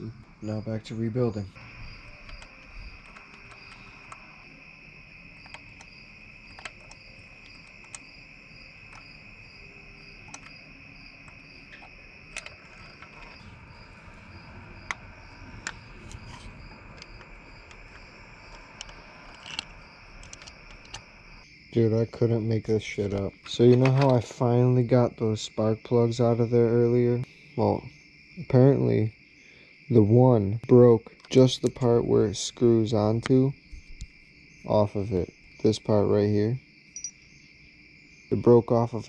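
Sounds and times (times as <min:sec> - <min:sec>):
high-pitched whine: 0:00.0 - 0:24.0
regular chirp: 0:36.8 - 0:38.4.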